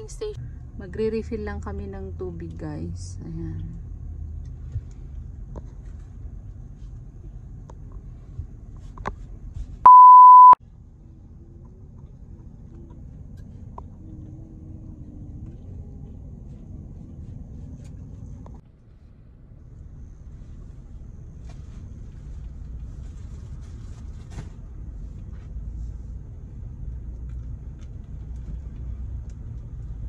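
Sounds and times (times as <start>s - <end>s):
low rumble inside car: 0.0s - 30.0s
censor beep: 9.9s - 10.6s.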